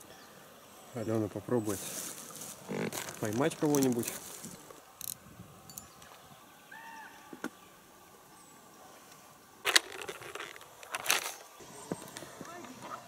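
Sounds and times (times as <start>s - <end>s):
fabric case rustling: 1.9s - 4.7s, 9.7s - 11.5s.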